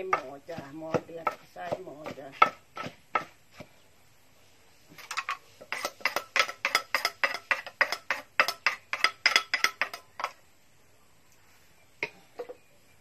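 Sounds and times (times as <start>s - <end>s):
spoon scraping in clay mortar: 5.0s - 10.4s.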